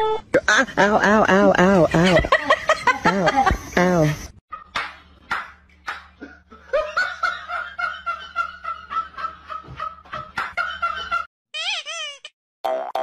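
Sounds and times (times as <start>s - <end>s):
person snickering: 0.4s - 4.2s.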